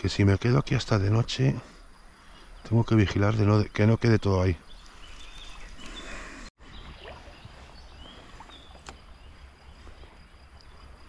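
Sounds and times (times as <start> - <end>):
low water noise: 4.4 - 11.0.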